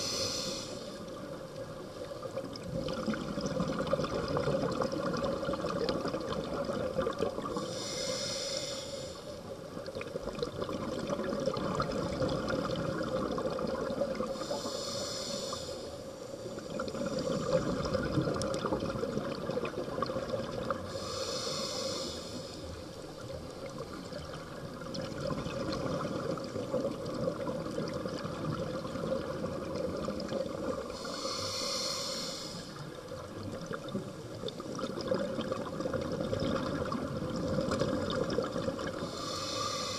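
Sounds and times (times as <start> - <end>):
diver breathing through regulator: 0.0 - 1.1, 7.5 - 9.4, 14.3 - 18.0, 20.9 - 22.8, 30.9 - 32.9, 38.9 - 39.9
exhaled air bubbling underwater: 0.0 - 39.9.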